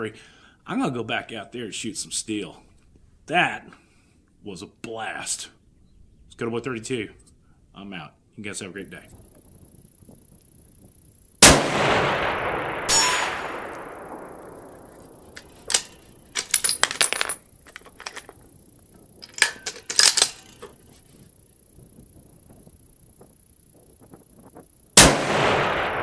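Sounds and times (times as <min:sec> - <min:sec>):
rifle shot echoing: 0:11.4 - 0:16.2, 0:25.0 - 0:26.0
sharp crack with ring: 0:11.4 - 0:17.4
rifle bolt metallic clicks: 0:15.3 - 0:18.3, 0:19.2 - 0:20.8.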